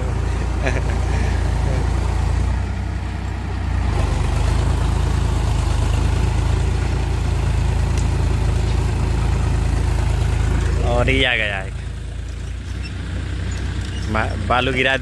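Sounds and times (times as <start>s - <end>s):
tractor diesel engine running: 0.0s - 15.0s
rotavator churning mud: 3.3s - 11.1s.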